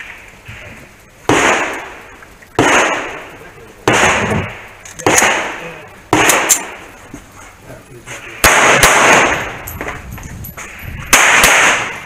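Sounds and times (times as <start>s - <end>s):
pistol shots: 1.3s - 2.0s, 2.6s - 6.8s, 8.4s - 10.0s, 11.1s - 12.0s.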